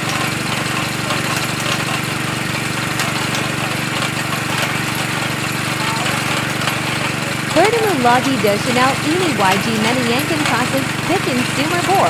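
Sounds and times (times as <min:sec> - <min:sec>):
drilling rig engine running: 0:00.0 - 0:12.0.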